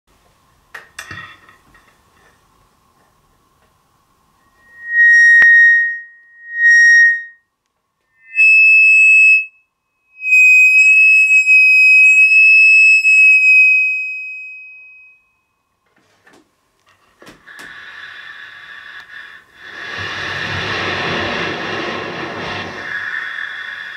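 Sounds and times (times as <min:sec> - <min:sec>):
high whistling feedback tones: 0:04.4 - 0:07.5, 0:08.1 - 0:15.5, 0:22.4 - 0:23.9.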